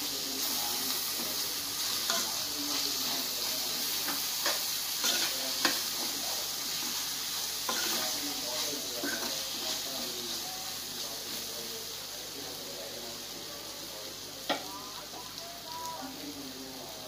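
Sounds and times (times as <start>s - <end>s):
vegetables sizzling in oil: 0.0s - 17.0s
spoon clinking against pan: 9.0s - 9.4s.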